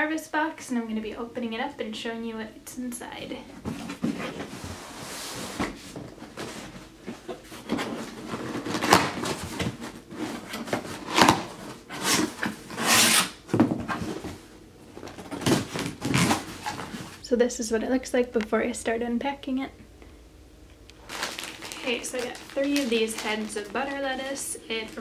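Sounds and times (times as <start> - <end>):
cardboard flaps scraping: 3.6 - 17.2
paper liner rustling: 3.6 - 17.2, 21.0 - 25.0.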